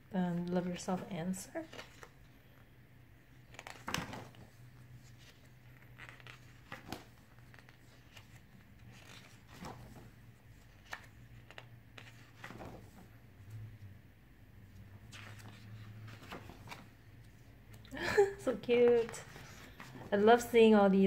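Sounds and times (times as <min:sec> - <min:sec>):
paper pages rustling: 0:00.4 - 0:02.4, 0:03.4 - 0:13.6, 0:14.8 - 0:17.8, 0:18.5 - 0:20.5.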